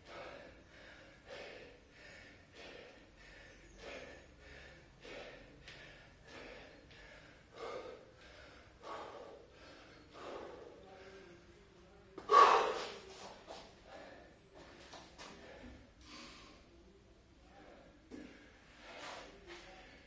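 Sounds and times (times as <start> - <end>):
man breathing hard: 0.0 - 11.6, 12.2 - 14.4, 15.2 - 16.8.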